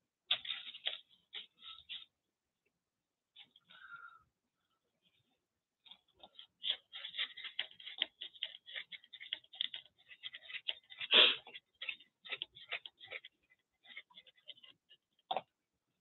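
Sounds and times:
paintbrush scrubbing and dabbing: 0.3s - 2.2s, 5.0s - 15.3s.

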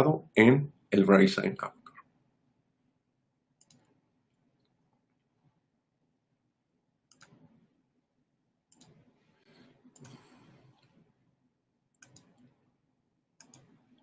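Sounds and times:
faint clicking: 3.6s - 4.0s, 7.1s - 7.5s, 8.7s - 9.0s, 11.9s - 12.6s, 13.4s - 14.0s.

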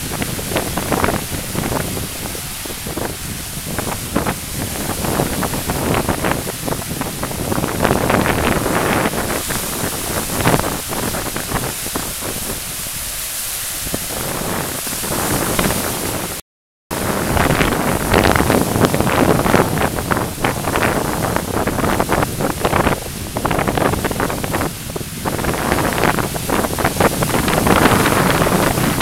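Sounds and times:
waves breaking: 0.0s - 29.0s
wind buffeting microphone: 0.0s - 29.0s.

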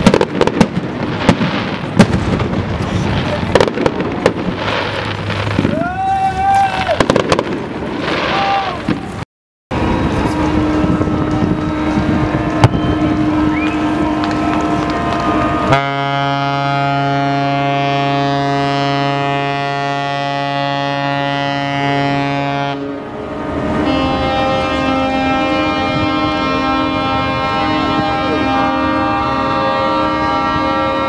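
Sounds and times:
crowd noise: 0.0s - 15.9s
fireworks crackling: 0.0s - 16.4s
wind: 0.0s - 31.0s
deep ship's horn blast: 9.7s - 31.0s.

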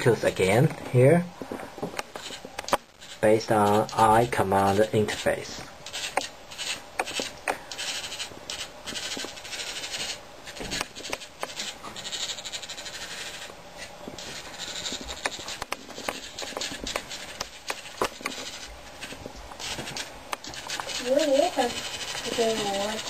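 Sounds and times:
servo motor whirring: 5.8s - 13.5s, 14.2s - 23.0s.

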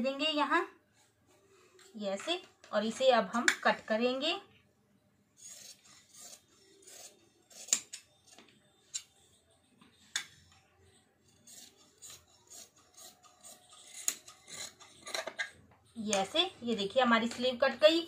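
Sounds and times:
scissors snipping fabric: 11.5s - 15.4s.

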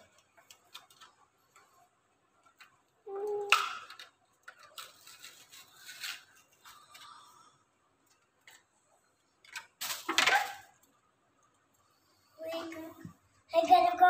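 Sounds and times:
plastic crinkling: 3.8s - 7.0s.

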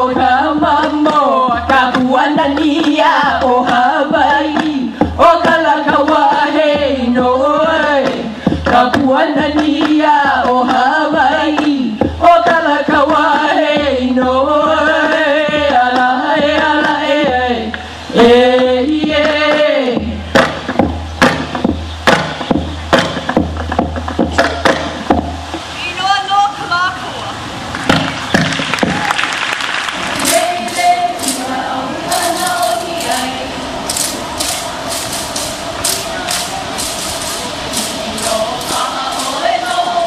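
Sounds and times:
person chanting: 30.2s - 40.0s.

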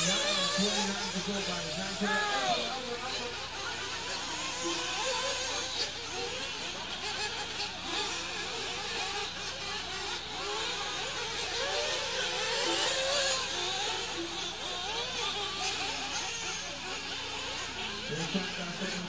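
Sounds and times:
rc car engines whining: 0.0s - 19.0s.

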